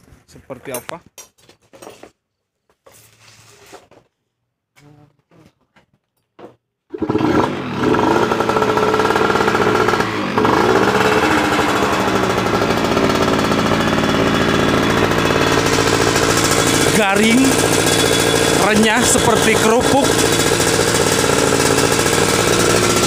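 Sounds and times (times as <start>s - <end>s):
two-stroke engine revving: 6.9s - 23.0s.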